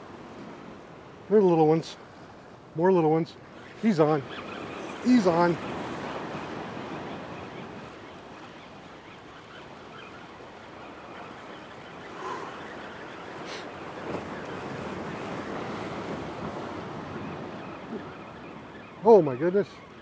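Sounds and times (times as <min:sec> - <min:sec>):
surf washing against boulders: 0:04.8 - 0:08.0, 0:12.0 - 0:19.8.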